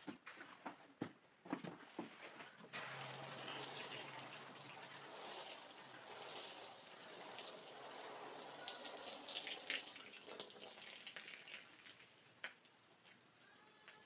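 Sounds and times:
water splashes and drips: 2.0s - 13.2s
hose spray on wet rug: 2.8s - 12.0s.

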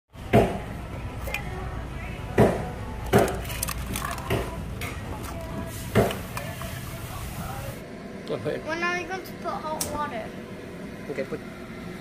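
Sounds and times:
crabs clattering in a box: 3.1s - 4.6s.

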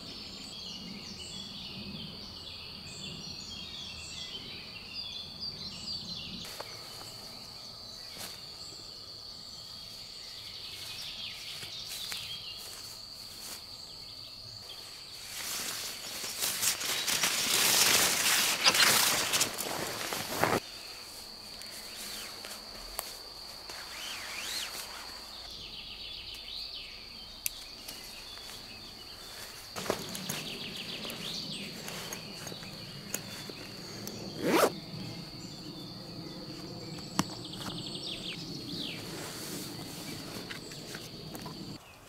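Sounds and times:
high insect drone: 0.0s - 42.0s
fabric rustling: 15.4s - 20.6s
bird calls: 23.7s - 42.0s
zipper pull: 34.4s - 34.8s.

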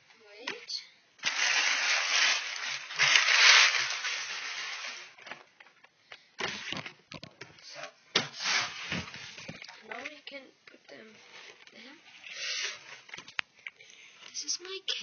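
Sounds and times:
plastic packaging rustling: 1.2s - 7.3s.

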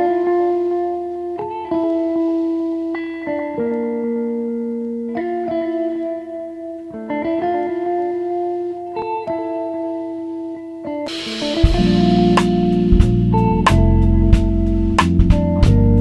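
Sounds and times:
plucked string melody: 0.0s - 16.0s
drums and bass: 11.1s - 16.0s.

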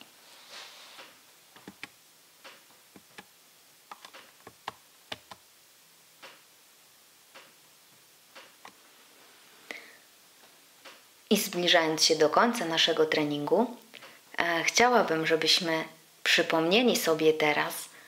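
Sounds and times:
short hiss: 0.2s - 1.2s
laptop keys clicking: 1.6s - 1.9s, 3.9s - 5.4s.

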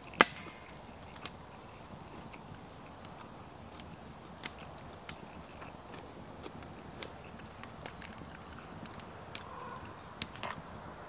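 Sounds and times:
chewing noodles: 1.0s - 9.0s.

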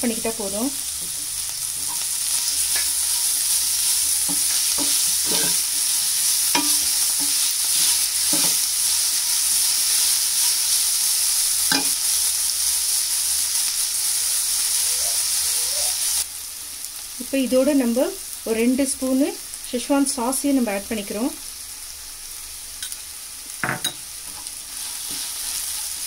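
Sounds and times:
food sizzling in a wok: 0.0s - 26.0s
metal spatula scraping a pan: 1.0s - 8.7s.

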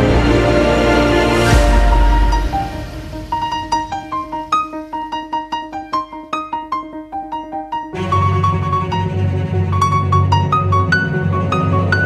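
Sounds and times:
steady low bass: 0.0s - 3.5s
piano melody: 0.0s - 12.0s.

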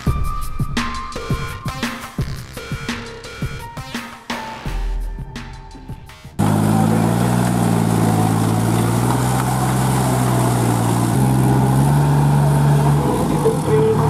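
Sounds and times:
tractor diesel engine running: 6.4s - 14.0s.

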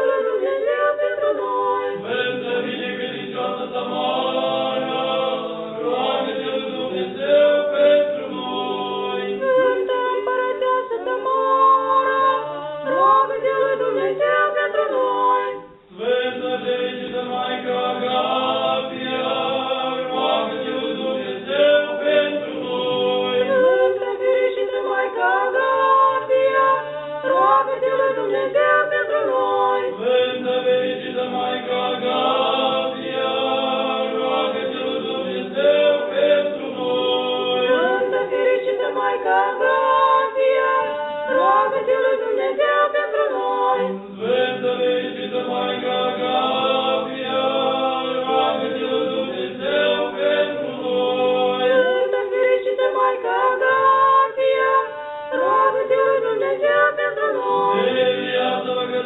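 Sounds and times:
voices singing chant: 0.0s - 59.0s.

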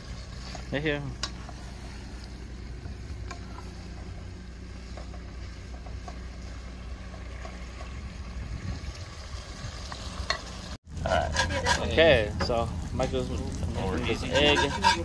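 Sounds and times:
steady low rumble: 0.0s - 11.1s
spatula scraping and knocking pot: 11.2s - 12.0s, 14.1s - 15.0s.

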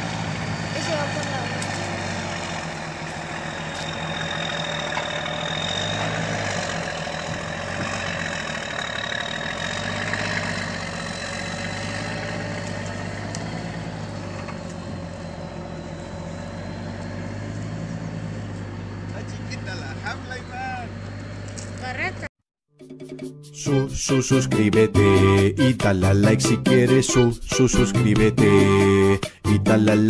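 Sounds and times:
diesel truck engine running: 0.0s - 22.3s.

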